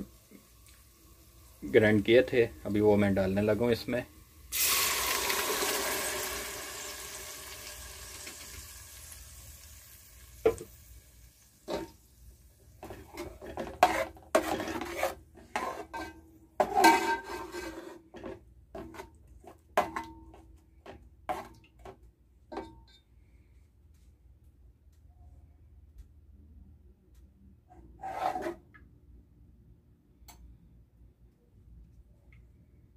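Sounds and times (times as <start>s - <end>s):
paste sizzling in hot oil: 3.8s - 12.0s, 12.8s - 18.0s
metal spoon scraping pot: 12.8s - 20.1s, 20.8s - 21.6s, 28.0s - 28.6s.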